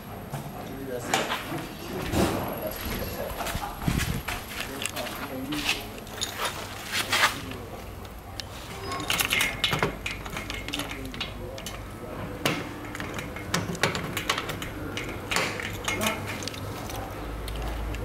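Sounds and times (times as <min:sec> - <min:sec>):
cable connector clicking and rattling: 0:09.1 - 0:11.8, 0:12.8 - 0:18.0.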